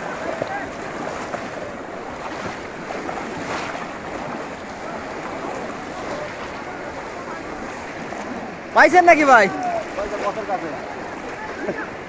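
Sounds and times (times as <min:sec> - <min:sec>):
distant murmur of voices: 0:00.0 - 0:02.5, 0:04.0 - 0:08.8
people wading through water: 0:00.0 - 0:12.0.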